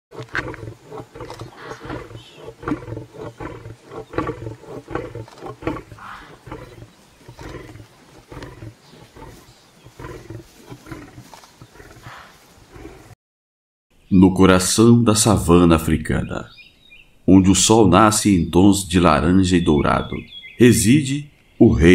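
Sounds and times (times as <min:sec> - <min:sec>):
lion growling: 0:00.1 - 0:13.2.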